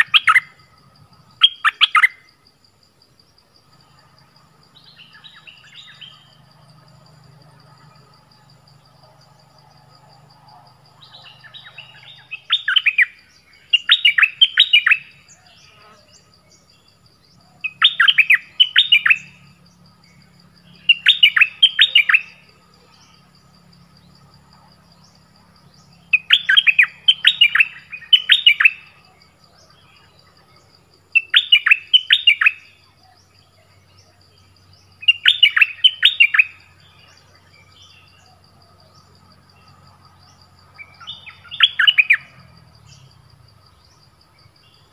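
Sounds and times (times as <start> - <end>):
birds chattering: 10.8 - 24.2, 24.9 - 30.6, 39.7 - 43.2.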